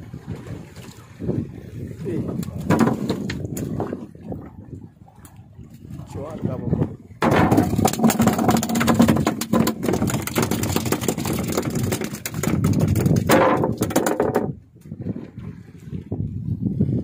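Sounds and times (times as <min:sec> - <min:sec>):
fish tail drumming on wooden deck: 0:02.6 - 0:03.4, 0:07.2 - 0:14.6.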